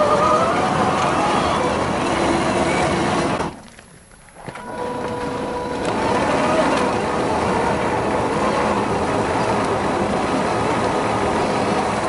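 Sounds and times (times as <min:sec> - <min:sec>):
drivetrain whine: 0:00.0 - 0:12.0
simulated engine note: 0:04.6 - 0:11.8.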